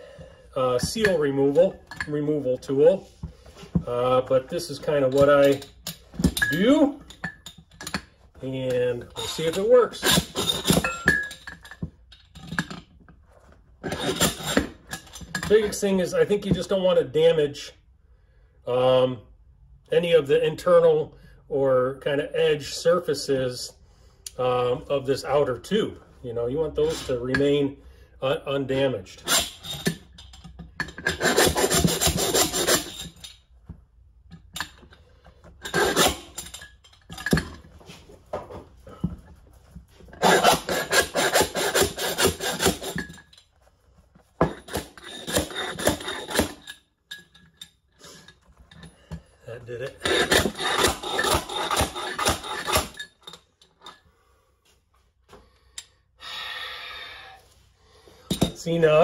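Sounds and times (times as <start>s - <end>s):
metal scraping on metal: 0.6s - 11.8s, 29.1s - 33.4s, 34.3s - 38.0s, 39.0s - 43.5s, 44.2s - 48.9s, 49.5s - 54.0s.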